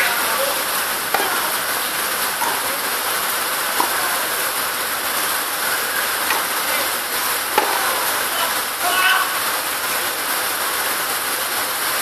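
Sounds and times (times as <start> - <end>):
steady hiss: 0.0 - 12.0
tennis ball struck by racket: 1.0 - 8.5.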